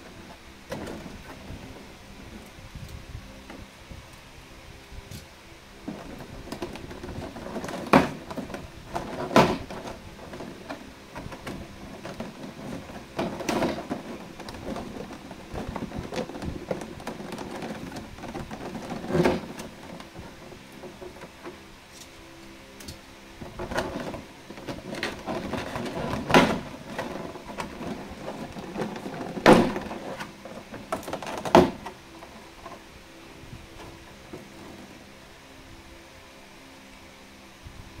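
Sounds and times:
sharp plastic cracks: 0:22.8 - 0:32.8.

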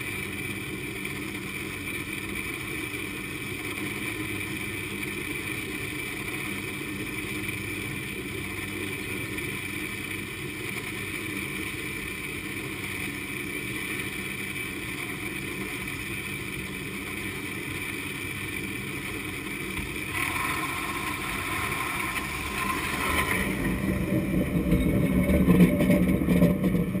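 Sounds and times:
cable mechanical rumble: 0:00.0 - 0:27.0
constant high whine: 0:00.0 - 0:27.0
extra tones: 0:19.8 - 0:27.0.

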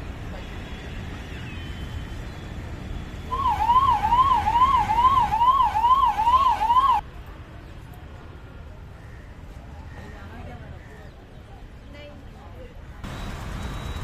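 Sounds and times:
low traffic hum: 0:00.0 - 0:14.0
electronic siren warbling: 0:03.3 - 0:07.0.

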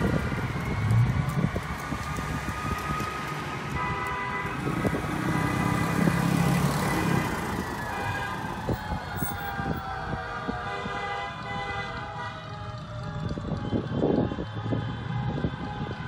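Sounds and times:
cars driving past: 0:00.0 - 0:09.8
fire engine sirens: 0:00.0 - 0:16.0.

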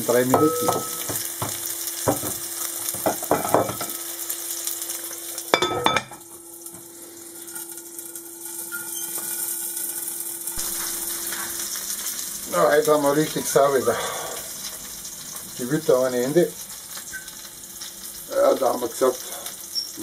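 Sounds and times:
sausages sizzling in frying pan: 0:00.0 - 0:20.0
glass lid clattering onto pan: 0:00.3 - 0:01.2, 0:03.0 - 0:04.0, 0:05.6 - 0:06.2.

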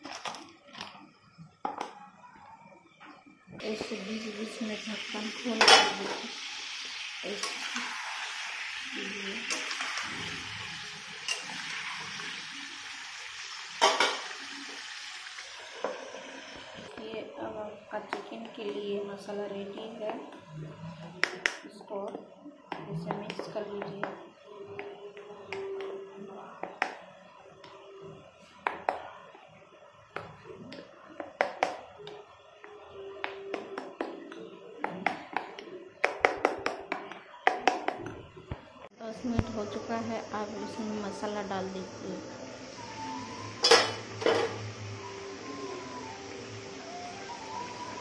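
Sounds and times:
food sizzling in a frying pan: 0:03.6 - 0:20.5, 0:39.1 - 0:48.0.

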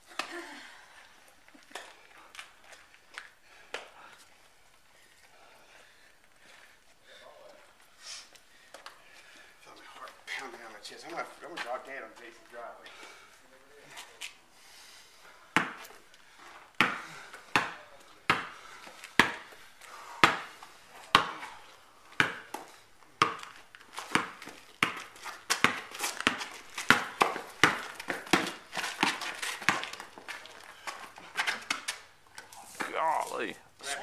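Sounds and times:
basketball bouncing on pavement: 0:15.5 - 0:32.1.

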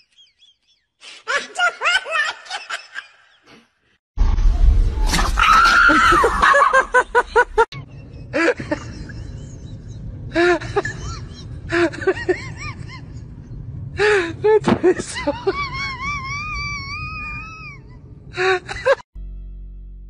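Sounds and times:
low hum: 0:04.2 - 0:20.0.

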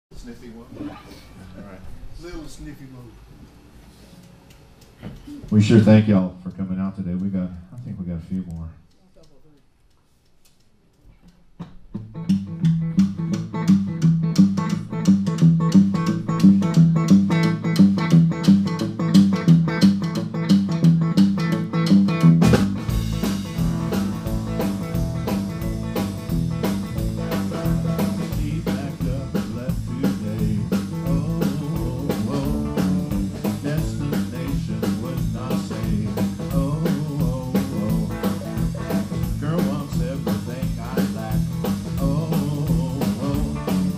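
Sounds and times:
blues band playing: 0:11.6 - 0:43.9
electric guitar riff: 0:12.0 - 0:43.9.

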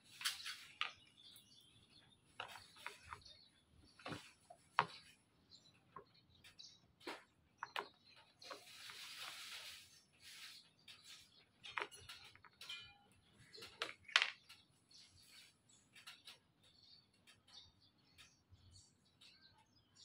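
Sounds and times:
plastic scraping: 0:07.0 - 0:12.7
plastic clicks and knocks: 0:13.5 - 0:14.8.

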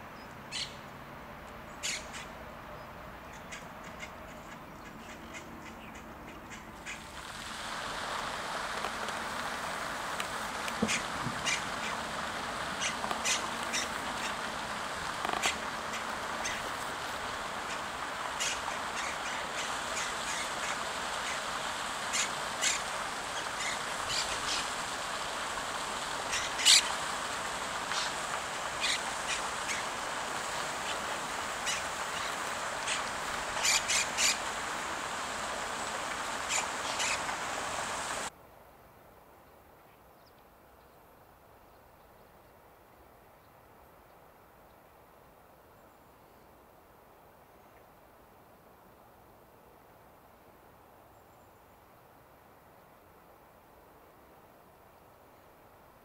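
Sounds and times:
parakeet and gull calls: 0:00.5 - 0:00.8, 0:01.8 - 0:02.3, 0:10.8 - 0:12.1, 0:12.8 - 0:14.5, 0:15.3 - 0:16.8, 0:17.6 - 0:24.8, 0:26.2 - 0:27.0, 0:27.9 - 0:30.0, 0:30.7 - 0:34.5, 0:36.4 - 0:38.2
fountain splashing: 0:01.6 - 0:38.3.

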